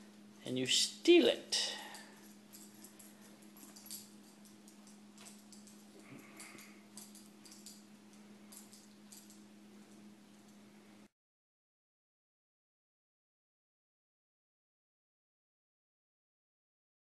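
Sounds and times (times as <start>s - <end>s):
steady low hum: 0.0s - 11.1s.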